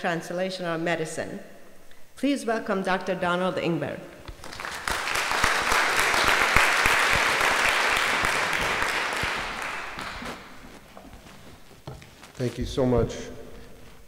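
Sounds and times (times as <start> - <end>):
audience applauding: 4.3 - 10.6.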